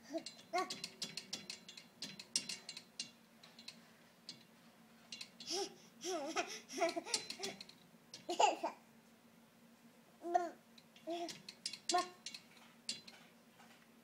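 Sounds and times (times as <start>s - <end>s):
baby babbling: 5.5s - 7.5s, 10.2s - 11.3s.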